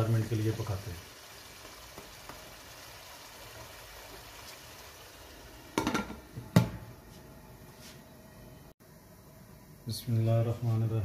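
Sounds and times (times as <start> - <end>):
masala frying and bubbling: 0.0 - 7.4.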